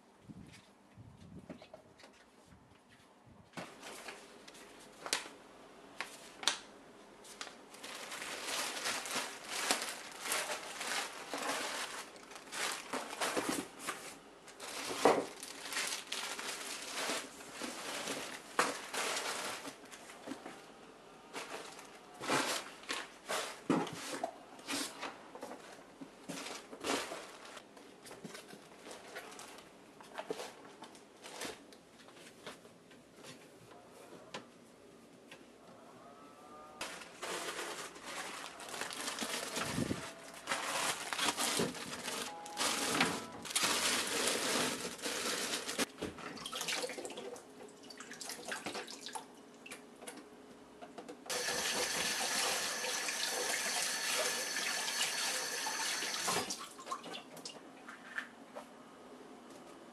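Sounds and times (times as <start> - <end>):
plastic bags crinkling: 7.3 - 20.1, 36.8 - 46.0.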